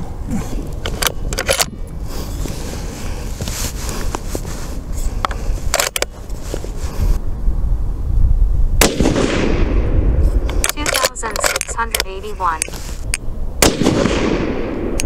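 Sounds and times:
steady low rumble: 0:00.0 - 0:15.0
rifle bolt metallic clicks: 0:00.7 - 0:01.9, 0:05.2 - 0:06.1, 0:10.5 - 0:13.2
rifle shot echoing: 0:08.8 - 0:11.9, 0:13.6 - 0:15.0.

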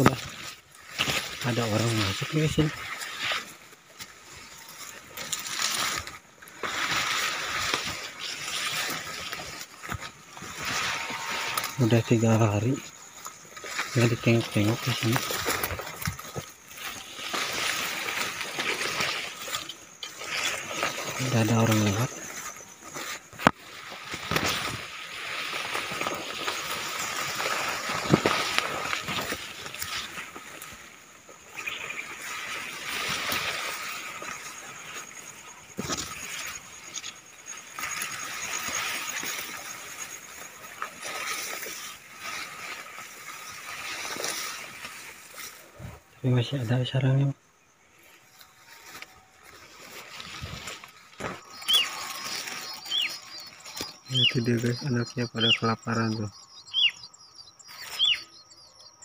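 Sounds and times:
twigs cracking and snapping: 0:00.0 - 0:02.0, 0:02.8 - 0:10.9, 0:14.7 - 0:30.9, 0:48.4 - 0:54.7
leaves and stems rustling: 0:00.0 - 0:58.9.

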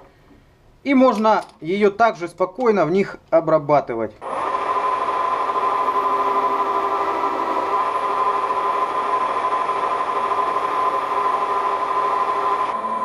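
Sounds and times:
metal lathe humming: 0:04.2 - 0:13.0.

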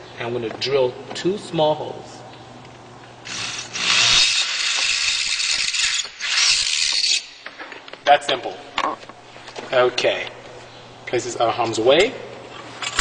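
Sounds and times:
power drill boring holes: 0:03.3 - 0:07.3.

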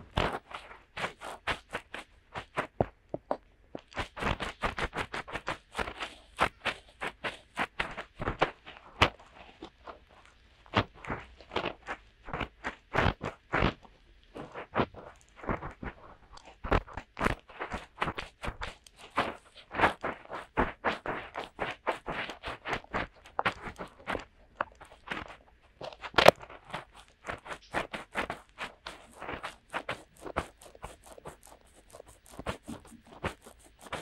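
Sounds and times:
fingertips scratching microphone: 0:00.0 - 0:34.0.

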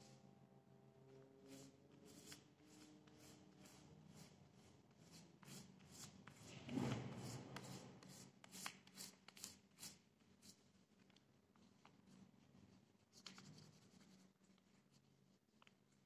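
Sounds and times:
fingertips scratching on paper: 0:01.4 - 0:10.6.

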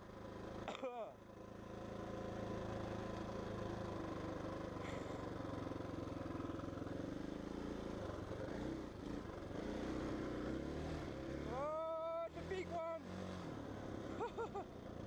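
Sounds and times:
dirt bike engine revving: 0:06.9 - 0:14.4.

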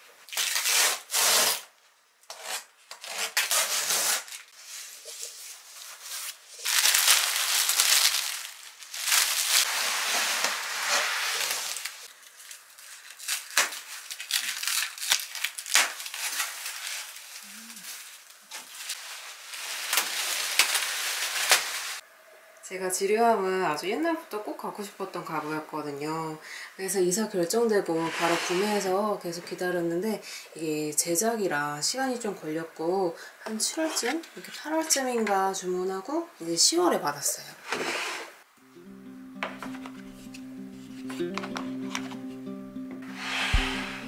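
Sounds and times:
cardboard and wrap scraping: 0:00.3 - 0:01.7, 0:02.3 - 0:22.0, 0:27.9 - 0:29.0, 0:43.0 - 0:44.0
packing tape ripping: 0:00.3 - 0:01.7, 0:02.3 - 0:04.5, 0:06.1 - 0:22.0.

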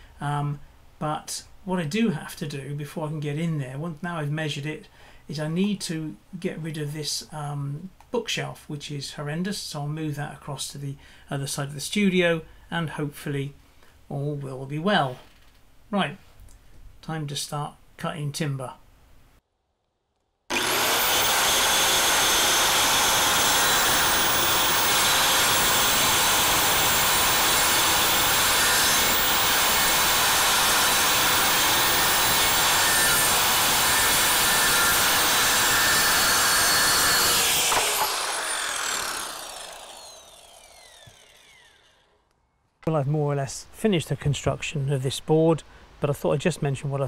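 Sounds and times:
circular saw cutting plywood: 0:20.5 - 0:42.2
saw blade winding down: 0:20.5 - 0:42.2.

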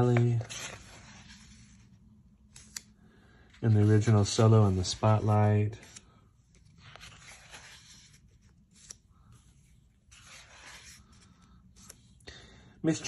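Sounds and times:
paper pages rustling: 0:00.0 - 0:12.2.

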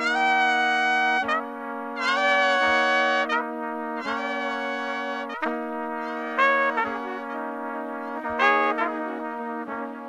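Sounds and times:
sustained music notes: 0:00.0 - 0:10.0
low held drone tone: 0:04.0 - 0:10.0.

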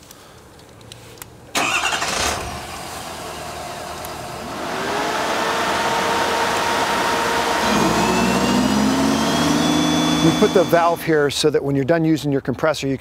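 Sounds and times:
compressor machine drone: 0:04.4 - 0:11.2.

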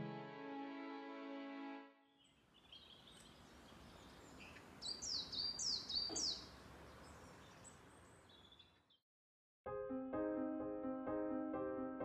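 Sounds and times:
faint bird chirps: 0:02.0 - 0:09.0
faint outdoor background noise: 0:02.0 - 0:09.0
songbird singing: 0:02.0 - 0:09.0.

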